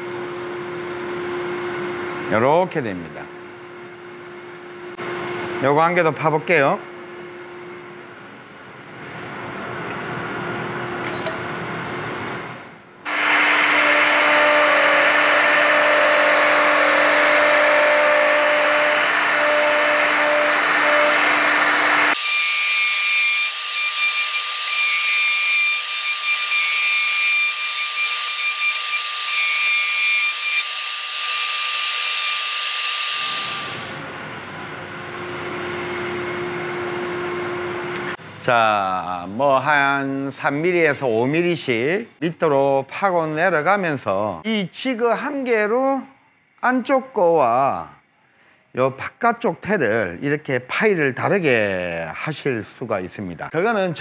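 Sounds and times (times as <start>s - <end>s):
dust extraction rushing: 13.1s - 34.1s
router whining cutting wood: 13.1s - 34.1s.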